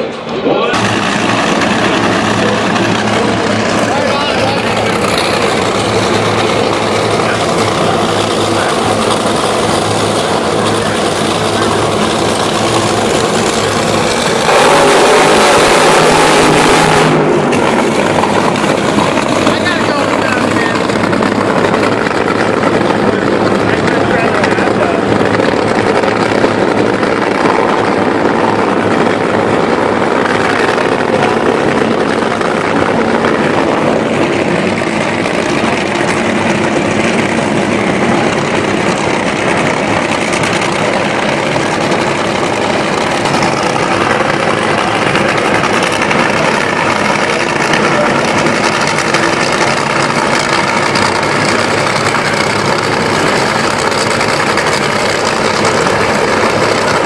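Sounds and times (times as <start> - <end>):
dragster engines idling: 0.0 - 57.0.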